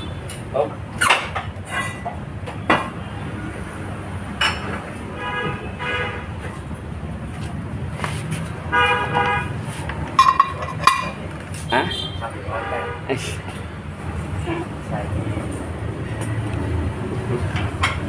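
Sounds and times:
vehicle horn toots: 0:05.2 - 0:06.3, 0:08.7 - 0:09.6, 0:11.7 - 0:13.2
metal knocks and clanks: 0:10.1 - 0:11.2.

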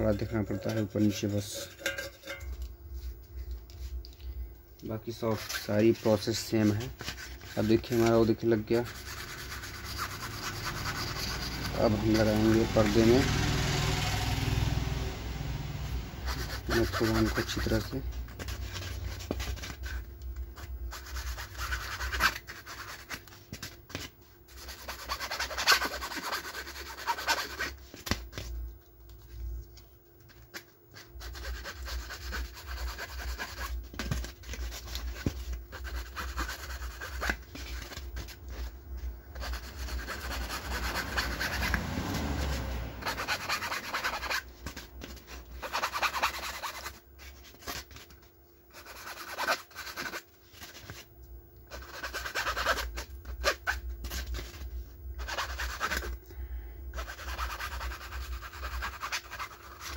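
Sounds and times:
cloth rubbing on speaker cone: 0:05.1 - 0:14.0, 0:15.9 - 0:20.0.

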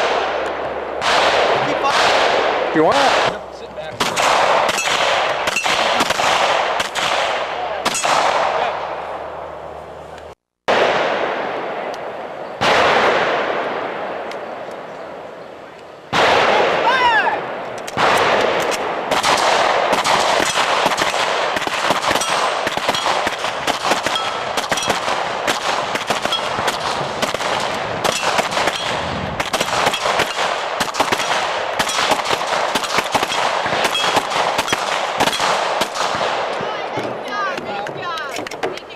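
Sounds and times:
pistol shots: 0:00.0 - 0:03.4, 0:04.0 - 0:09.0, 0:10.7 - 0:14.5, 0:16.1 - 0:16.8, 0:17.5 - 0:36.6
metallic pings of steel targets: 0:04.7 - 0:05.8, 0:22.1 - 0:23.4, 0:24.0 - 0:25.1, 0:26.2 - 0:26.8, 0:28.1 - 0:29.0, 0:29.8 - 0:30.3, 0:33.2 - 0:35.5.

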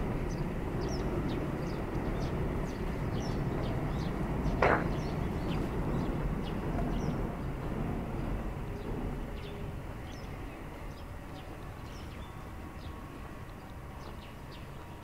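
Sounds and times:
low rumble of road traffic: 0:00.0 - 0:15.0
small birds chirping: 0:00.1 - 0:07.5, 0:08.2 - 0:15.0.

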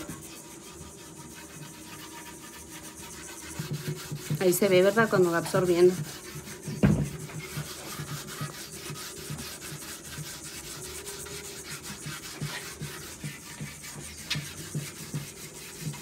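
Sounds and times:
garlic rubbing on clay pot: 0:00.0 - 0:16.0.

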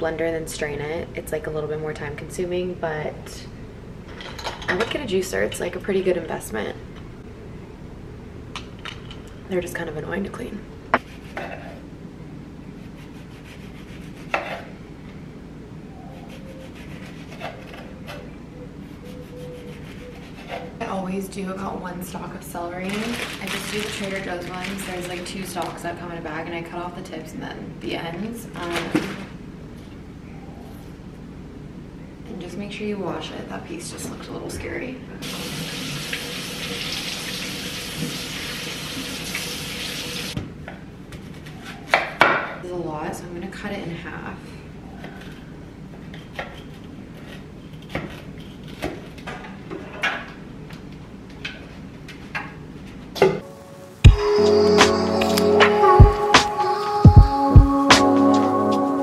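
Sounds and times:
knife scraping lemon peel: 0:12.8 - 0:14.7, 0:16.2 - 0:18.2, 0:18.8 - 0:20.8
kitchen faucet running: 0:35.2 - 0:40.4.

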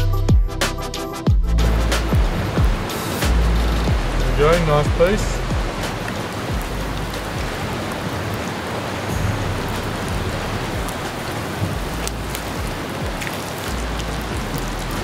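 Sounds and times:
low rumble: 0:01.4 - 0:07.7, 0:09.1 - 0:12.8
fire pops and crackles: 0:01.9 - 0:08.5, 0:09.7 - 0:15.0.

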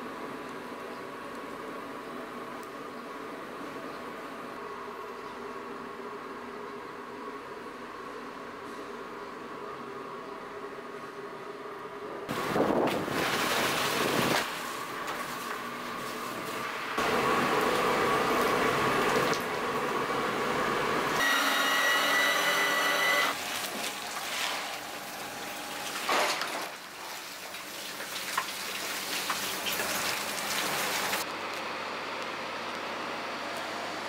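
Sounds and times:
water boiling and bubbling: 0:12.4 - 0:21.1, 0:23.4 - 0:31.2
machine whine: 0:16.8 - 0:26.2.

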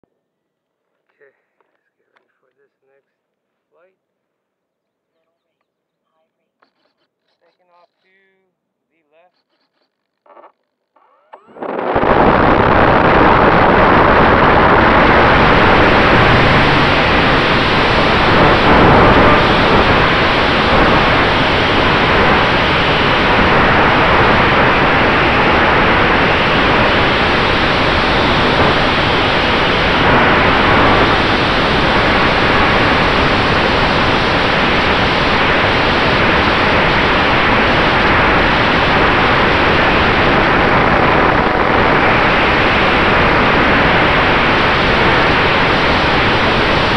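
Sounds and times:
wind and propeller rushing: 0:11.5 - 0:46.9.

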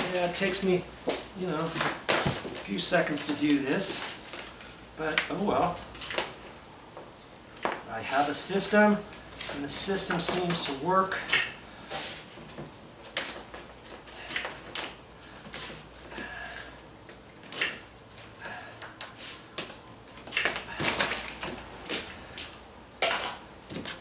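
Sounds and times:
packing material crackling: 0:01.4 - 0:06.5.

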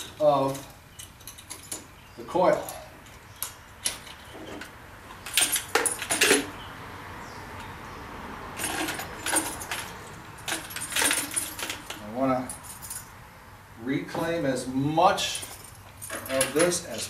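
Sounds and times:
metal fittings clinking: 0:15.3 - 0:17.0.

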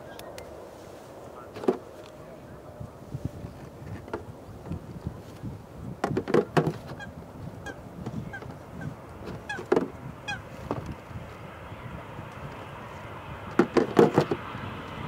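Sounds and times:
geese honking: 0:06.4 - 0:10.9.

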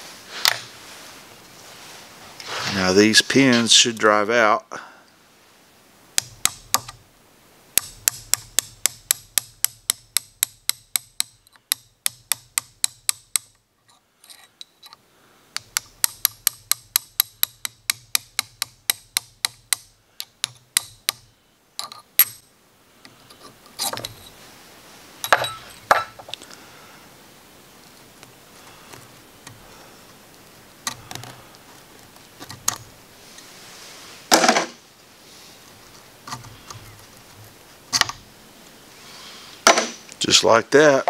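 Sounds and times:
hammer tapping pin punch: 0:07.8 - 0:13.6
metal parts rattling: 0:25.2 - 0:26.4.

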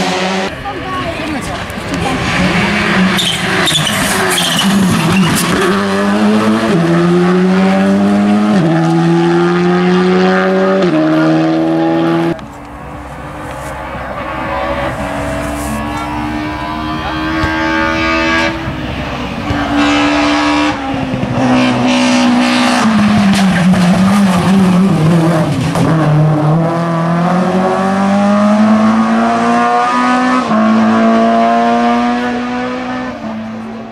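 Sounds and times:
rally car engine passing by: 0:00.0 - 0:33.9.

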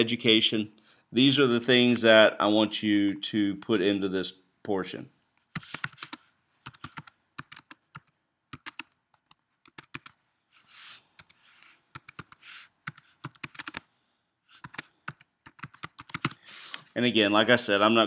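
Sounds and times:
computer keyboard key clicks: 0:05.6 - 0:10.1, 0:12.9 - 0:13.8.

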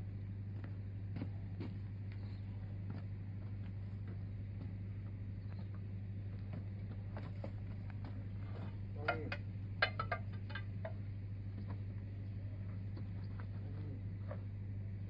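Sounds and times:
engine humming: 0:00.0 - 0:15.0
metal bar knocking on wheel rim: 0:09.0 - 0:11.0.

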